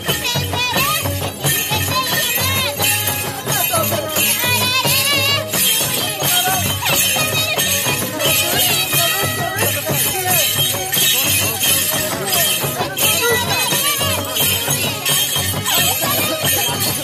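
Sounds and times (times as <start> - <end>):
high jingling: 0.0 - 17.0.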